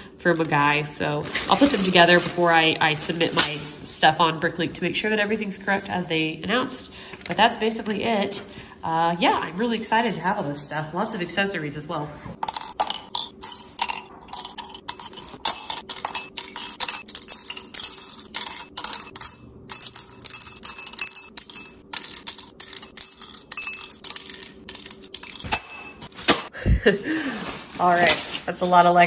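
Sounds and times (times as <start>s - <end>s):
plastic pieces clinking in bowl: 0.2s - 3.6s, 12.4s - 26.5s, 27.1s - 29.0s.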